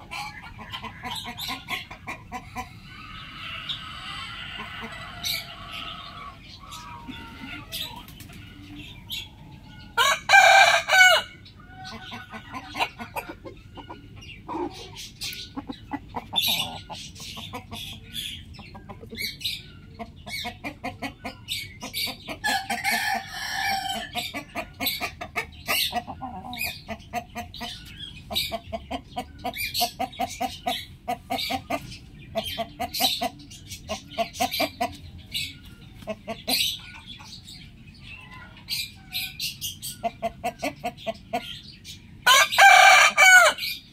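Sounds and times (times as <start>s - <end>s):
rooster crowing: 10.0s - 11.4s, 22.5s - 24.2s, 42.3s - 43.6s.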